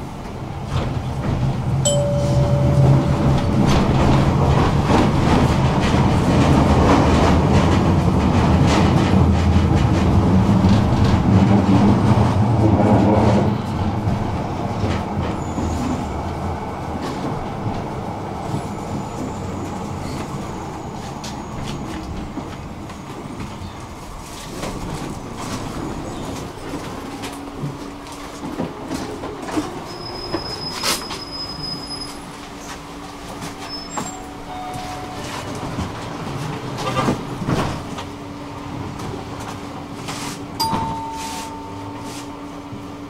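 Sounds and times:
electric tram motor hum: 0.0 - 31.1, 32.0 - 43.0
tram wheel rumble: 0.0 - 43.0
short steady tone: 1.9 - 4.2, 40.6 - 42.6.

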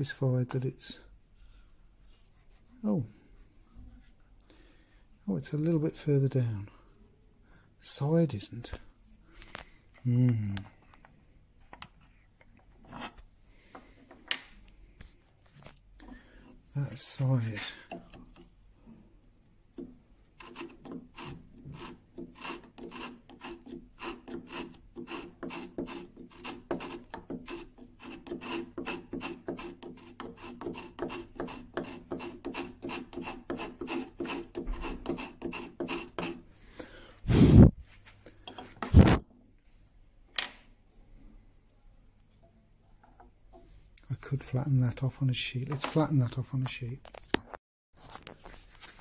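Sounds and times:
file rasping wood: 19.8 - 36.5.

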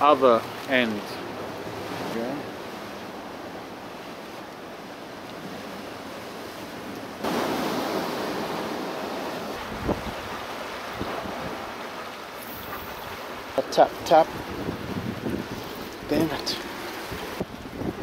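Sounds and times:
sea surf on rocks: 0.0 - 18.0
wind on microphone: 7.2 - 11.8, 14.0 - 18.0.

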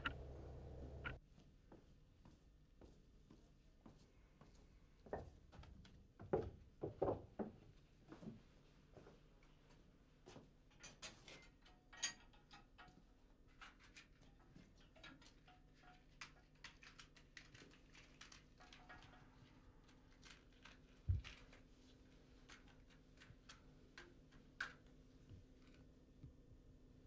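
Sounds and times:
low hum: 0.0 - 1.2
small objects clicking: 15.0 - 21.6.

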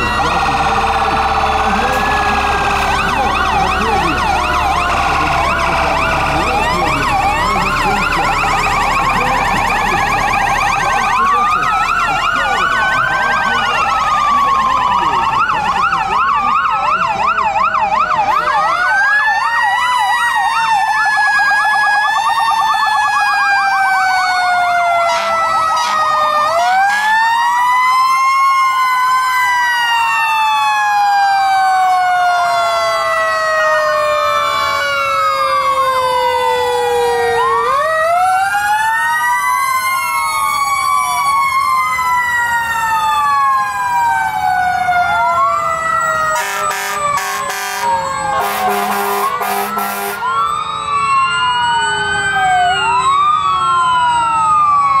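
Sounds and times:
fire truck sirens wailing: 0.0 - 55.0
rapid horn blasts: 46.4 - 50.2.

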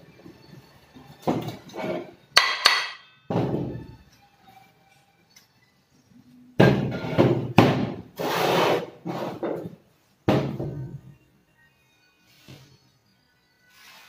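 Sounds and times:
metal scraping on wood: 1.5 - 2.2, 8.2 - 9.8
metal housing knocking on workbench: 2.4 - 3.8.

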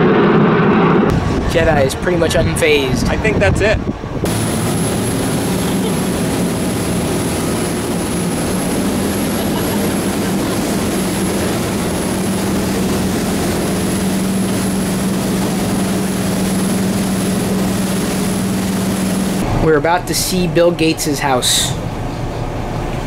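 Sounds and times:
wind buffeting microphone: 0.0 - 19.6
motorboat engine running: 4.0 - 23.0
water rushing from wake: 4.2 - 19.7.

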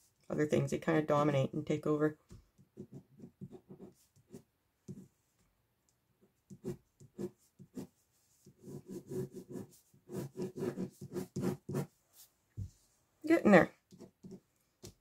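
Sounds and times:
pen scratching on paper: 2.6 - 5.1, 6.4 - 12.0, 13.8 - 14.5.

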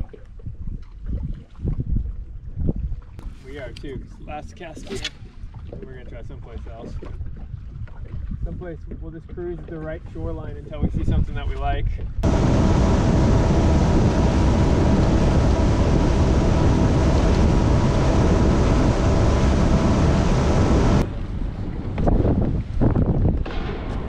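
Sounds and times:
wind rush on microphone: 0.0 - 24.0
outboard motor hum: 12.2 - 22.2.

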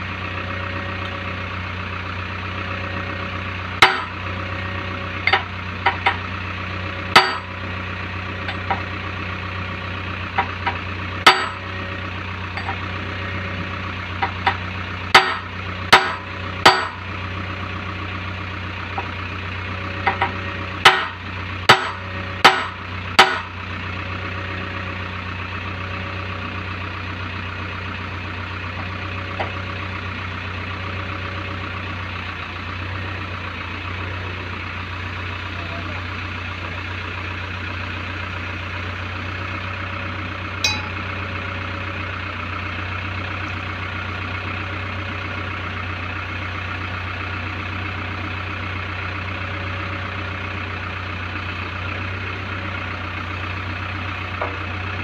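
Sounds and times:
diesel engine idling: 0.0 - 55.0
hammer striking steel: 7.2 - 7.5, 11.3 - 11.6, 16.0 - 17.0, 40.6 - 41.1.

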